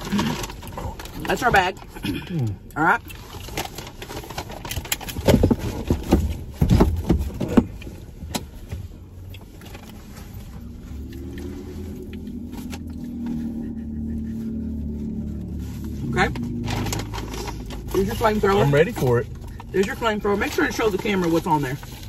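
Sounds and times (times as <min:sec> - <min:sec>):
paper wrappers crinkling: 0:00.0 - 0:01.9, 0:14.6 - 0:22.0
steady low hum: 0:06.3 - 0:20.4.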